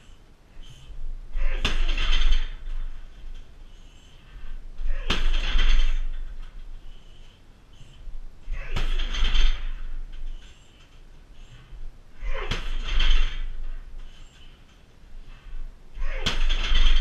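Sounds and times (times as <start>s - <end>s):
kicks smacking heavy bag: 8.5s - 9.9s, 12.2s - 13.6s, 16.0s - 17.0s.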